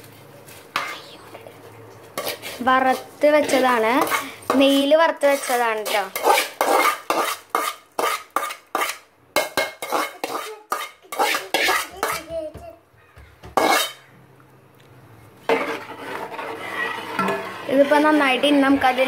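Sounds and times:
spoon scraping metal bowl: 0:02.0 - 0:12.3, 0:13.6 - 0:14.1, 0:15.4 - 0:19.0.

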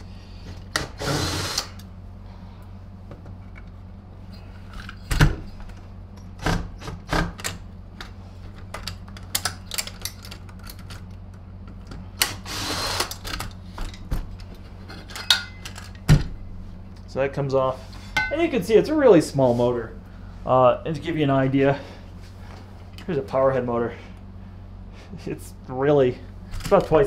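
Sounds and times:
steady low hum: 0:00.0 - 0:27.0
clicks and knocks of metal housing: 0:14.8 - 0:16.1.

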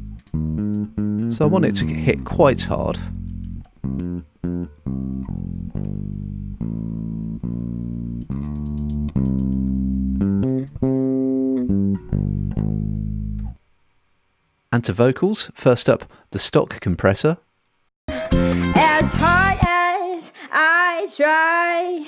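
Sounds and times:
electric bass guitar notes: 0:00.0 - 0:13.6, 0:18.1 - 0:19.7.

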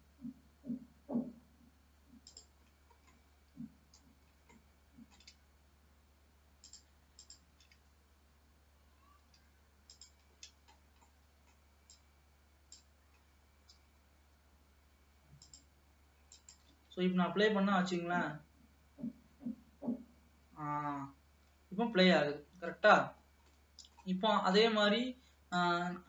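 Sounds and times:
soft low thumps: 0:00.0 - 0:02.2, 0:18.9 - 0:20.8
steady low hum: 0:00.0 - 0:26.0
mouse and keyboard clicks: 0:02.2 - 0:03.2, 0:03.9 - 0:05.4, 0:06.6 - 0:07.8, 0:09.3 - 0:12.0, 0:15.4 - 0:15.7, 0:16.3 - 0:16.8, 0:23.4 - 0:24.1.

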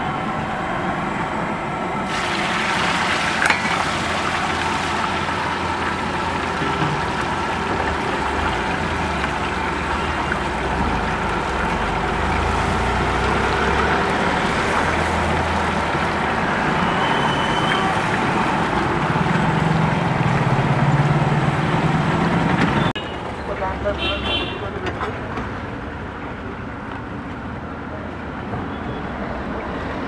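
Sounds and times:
chicken deep-frying in oil: 0:02.1 - 0:22.9.

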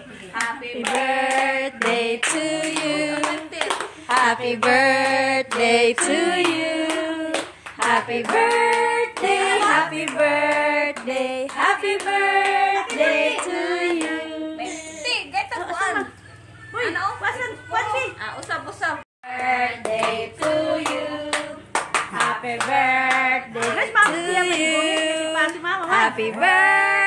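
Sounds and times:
people singing a birthday song: 0:00.0 - 0:15.2, 0:19.2 - 0:27.0
hands clapping: 0:00.4 - 0:04.8, 0:19.4 - 0:26.0.

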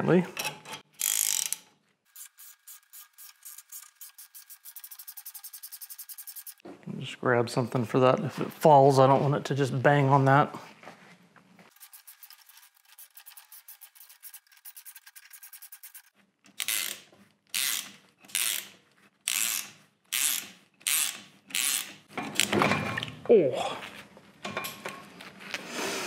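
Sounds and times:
ratchet wrench clicking: 0:01.0 - 0:01.6, 0:17.6 - 0:18.7, 0:19.3 - 0:22.0.

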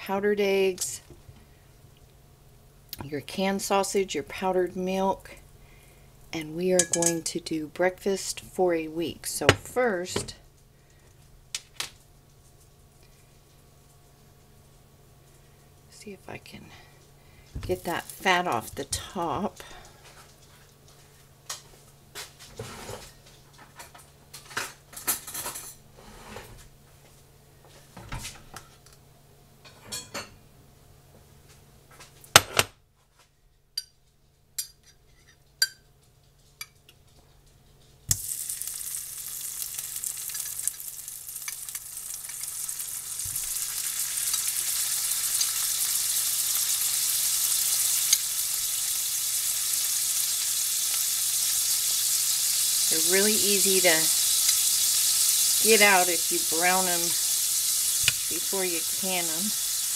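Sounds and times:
patties sizzling in a frying pan: 0:38.1 - 0:59.9.

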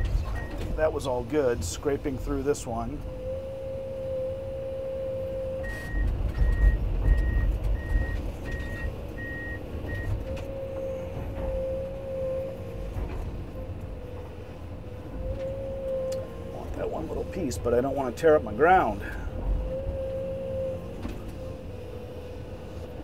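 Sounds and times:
travel alarm beeping: 0:00.0 - 0:00.6, 0:03.4 - 0:10.7
heavy low rumble: 0:00.0 - 0:22.6
excavator whine: 0:00.0 - 0:23.0.

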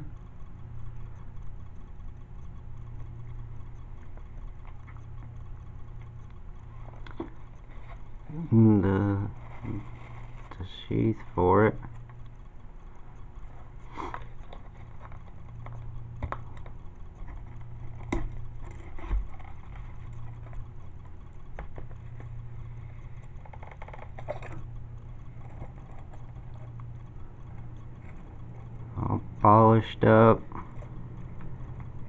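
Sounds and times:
steady low hum: 0:00.0 - 0:32.0
small clicks and knocks: 0:14.0 - 0:28.8.

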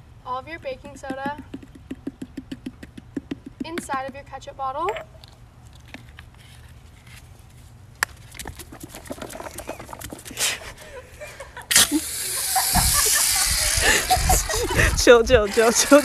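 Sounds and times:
bottle shaken with clicks and knocks: 0:08.4 - 0:10.4
loud hissing spray: 0:11.7 - 0:14.8.

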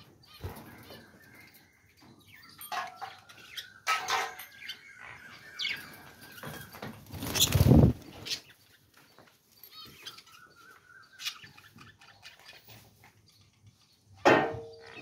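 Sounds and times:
budgerigars chirping and warbling: 0:00.0 - 0:09.0, 0:09.7 - 0:15.0.

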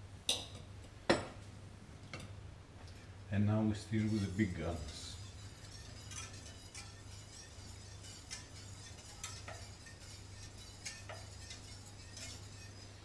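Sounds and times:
low steady hum: 0:00.0 - 0:13.0
utensil scraping metal pot: 0:03.8 - 0:13.0.

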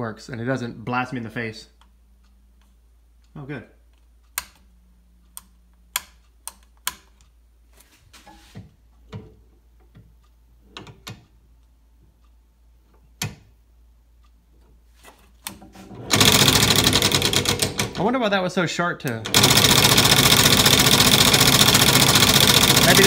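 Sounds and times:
faint clicks and knocks: 0:08.1 - 0:13.6.

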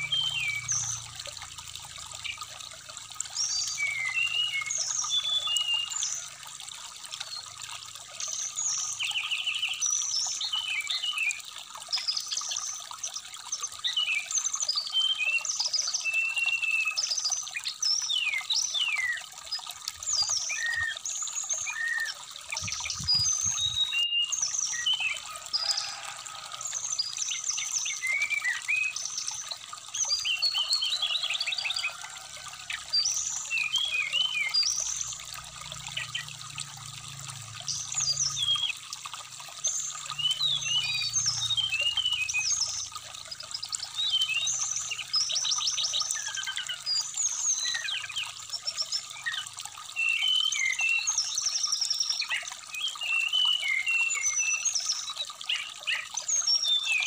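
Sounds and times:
stream trickling: 0:00.0 - 0:57.0
bird chirping and whistling: 0:22.9 - 0:25.1.

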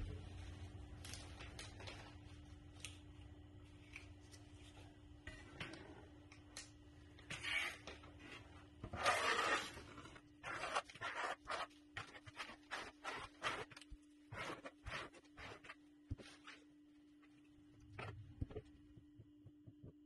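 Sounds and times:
faint steady hum: 0:00.0 - 0:20.0
trowel scraping concrete: 0:08.9 - 0:13.7.

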